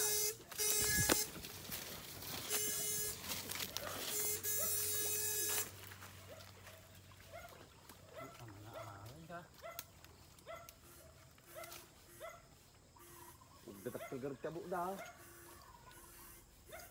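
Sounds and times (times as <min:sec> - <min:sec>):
electric buzz of fish shocker: 0:00.0 - 0:06.0, 0:15.0 - 0:16.9.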